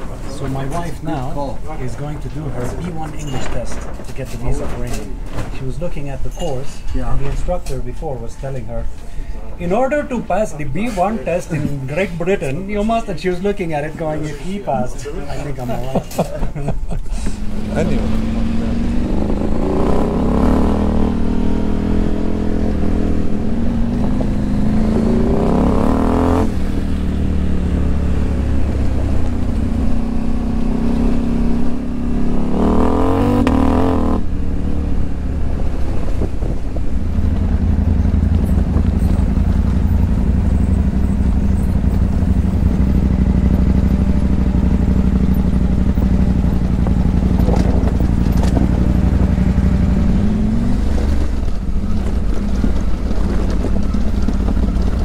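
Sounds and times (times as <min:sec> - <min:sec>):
motorcycle engine running: 0:17.3 - 0:55.0.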